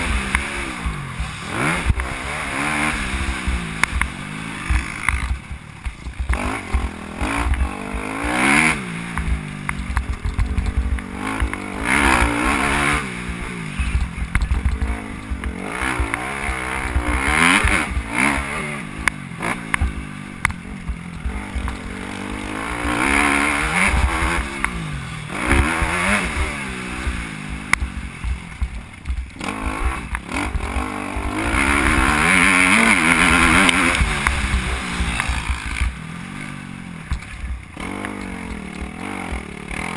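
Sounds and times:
motocross engine revving: 0.0 - 39.9.

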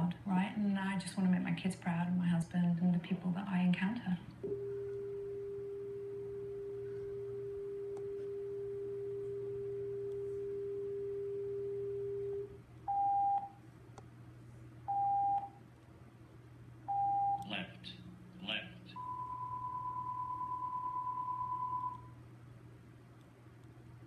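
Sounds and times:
steady pure test tone: 16.9 - 22.2.

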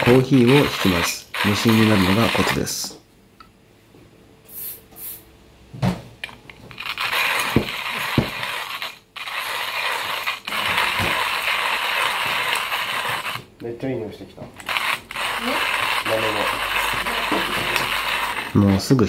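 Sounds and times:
coffee mill grinding beans: 0.0 - 2.9, 6.5 - 13.5, 14.6 - 19.0.

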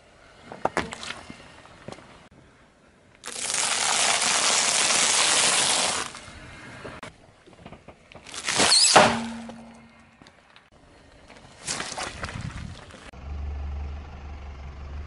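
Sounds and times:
tyre crunching popcorn: 3.2 - 6.2, 8.2 - 9.4
foil balloon squashed squeaking: 8.3 - 9.5.

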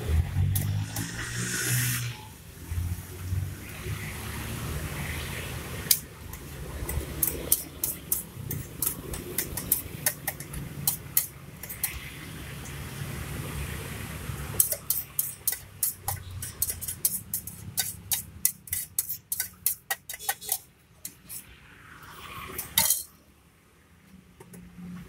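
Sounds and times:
metal spoon clicking on steel cup: 7.2 - 12.0, 14.6 - 21.2.

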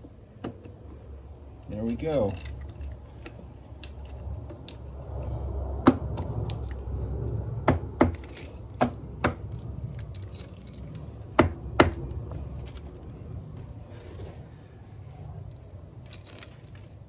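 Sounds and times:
metal engine parts clicking: 1.5 - 13.6, 15.5 - 17.0.

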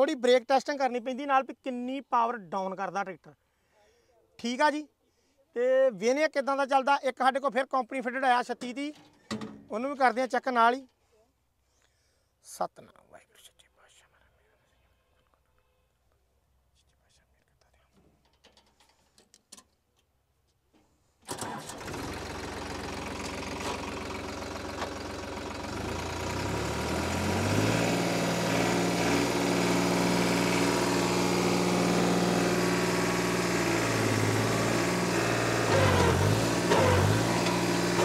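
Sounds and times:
diesel tractor engine revving: 21.3 - 38.0.

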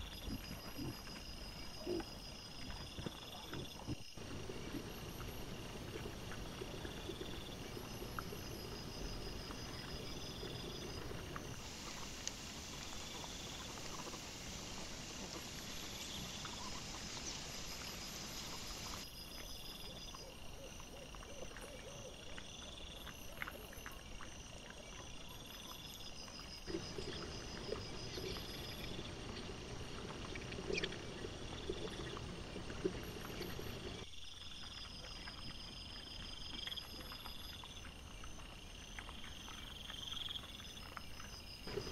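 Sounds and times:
insects chirping: 0.0 - 41.9
steady hiss: 4.2 - 19.1
animals rooting clicks and rustles: 26.6 - 34.0.

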